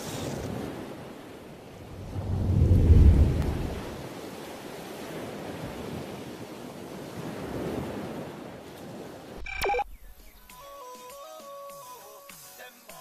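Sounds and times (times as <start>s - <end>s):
steady rushing noise: 1.8s - 4.1s
soft melody music: 9.9s - 13.0s.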